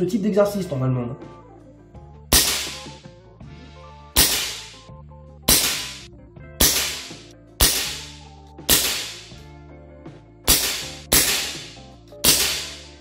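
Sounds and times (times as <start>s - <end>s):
air rifle shots cracking: 2.3s - 3.1s, 4.2s - 4.9s, 5.5s - 9.4s, 10.5s - 13.0s.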